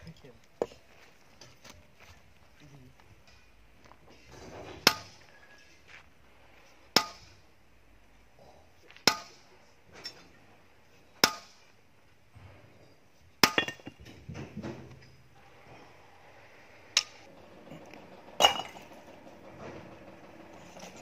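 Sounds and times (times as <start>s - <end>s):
hammer striking rock: 7.0s - 7.3s, 9.0s - 9.4s, 11.2s - 11.6s, 13.4s - 14.1s.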